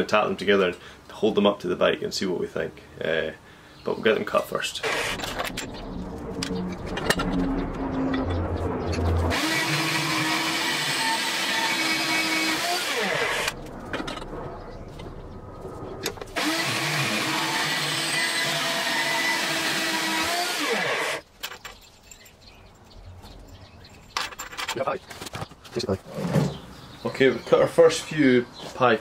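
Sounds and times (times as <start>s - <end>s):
bandsaw cutting metal tube: 4.8s - 5.7s, 9.2s - 13.6s, 16.4s - 21.2s.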